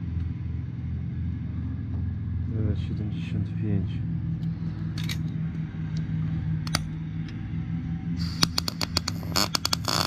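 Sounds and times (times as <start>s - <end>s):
steady low hum: 0.0s - 10.0s
welding arc crackle: 8.2s - 10.0s.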